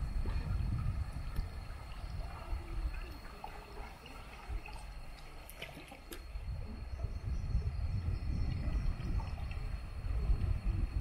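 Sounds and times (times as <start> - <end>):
river water gurgling: 0.0 - 7.1.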